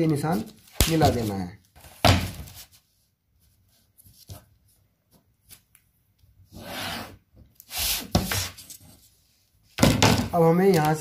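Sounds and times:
ruler and paper handling noises: 0:10.5 - 0:11.0.

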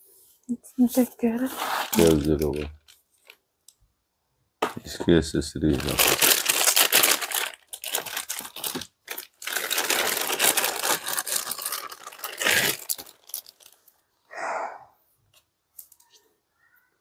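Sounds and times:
plastic bag crinkling and rustling: 0:00.9 - 0:03.4, 0:05.6 - 0:14.0.

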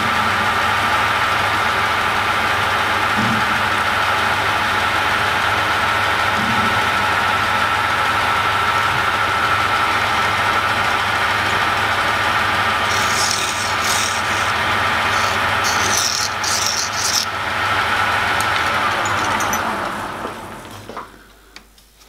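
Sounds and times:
metal lathe whining: 0:10.7 - 0:20.1
file rasping on metal: 0:12.8 - 0:17.3.

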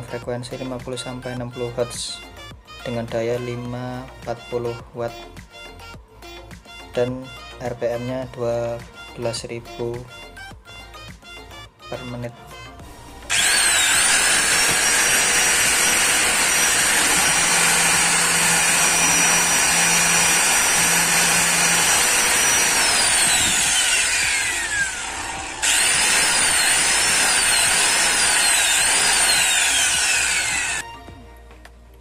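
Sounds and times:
angle grinder whine: 0:13.3 - 0:30.8.

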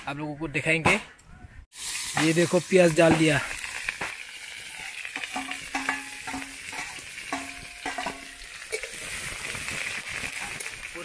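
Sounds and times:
onions sizzling in oil: 0:01.7 - 0:11.0.

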